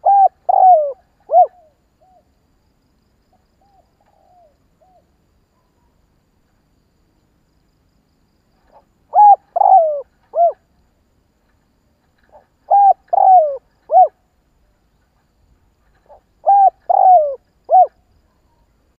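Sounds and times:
dove cooing: 0.0s - 2.2s, 8.7s - 10.7s, 12.3s - 14.2s, 15.9s - 18.0s.

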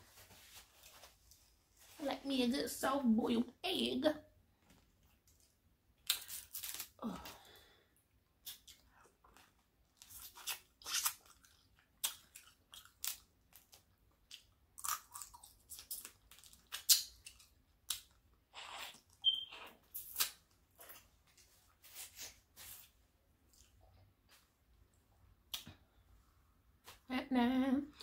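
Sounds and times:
person chewing and crunching food: 5.0s - 24.5s
brief high squeak: 18.6s - 19.8s.

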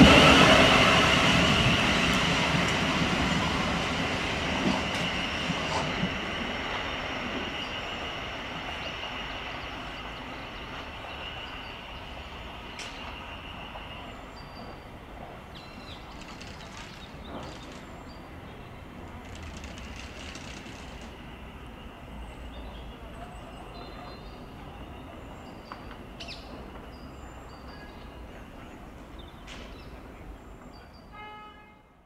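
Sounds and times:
electric train low rumble: 0.0s - 32.0s
sharp clicks: 19.2s - 21.1s.

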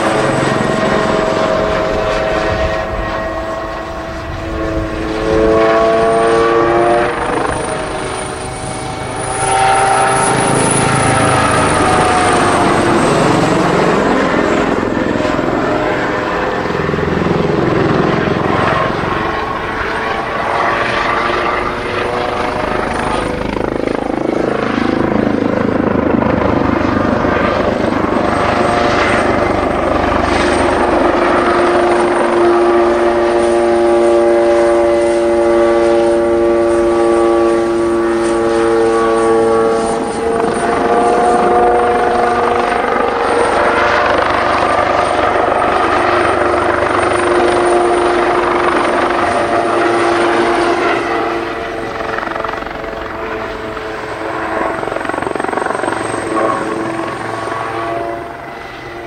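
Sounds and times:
helicopter flying low past: 0.0s - 59.0s.

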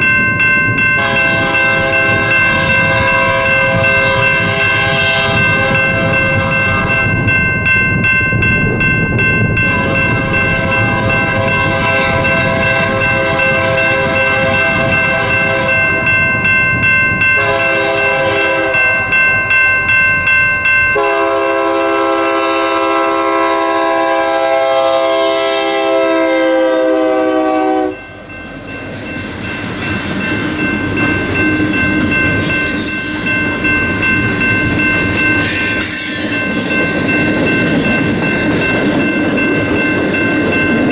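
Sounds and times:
crossing bell ringing: 0.0s - 40.9s
locomotive horn blasts: 1.0s - 7.0s, 9.7s - 15.9s, 17.4s - 18.9s, 21.0s - 28.1s
train wheels clickety-clack: 27.8s - 40.9s.

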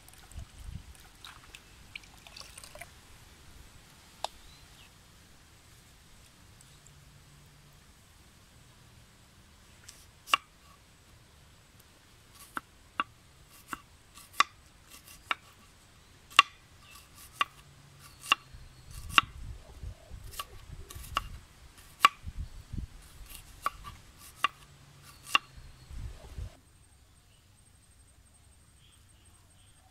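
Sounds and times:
knife chopping onion on wooden board: 16.3s - 19.3s, 23.2s - 25.5s.

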